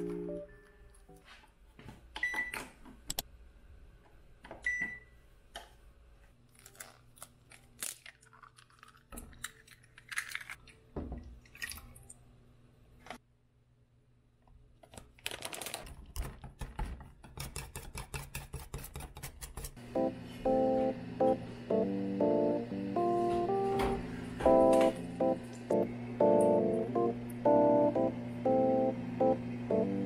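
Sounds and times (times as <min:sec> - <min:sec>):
egg cracking: 0:06.5 - 0:11.8.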